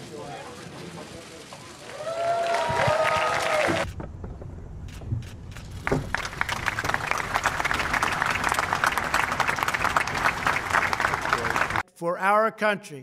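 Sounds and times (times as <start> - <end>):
audience applauding: 1.8 - 3.9, 5.8 - 11.8.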